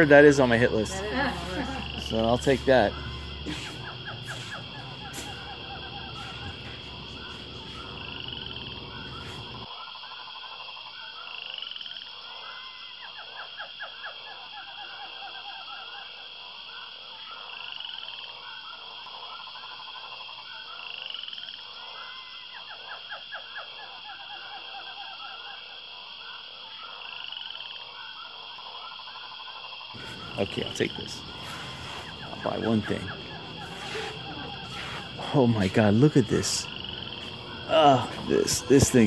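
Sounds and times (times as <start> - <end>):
frogs croaking: 0.0 - 39.0
high-pitched hum: 30.0 - 39.0.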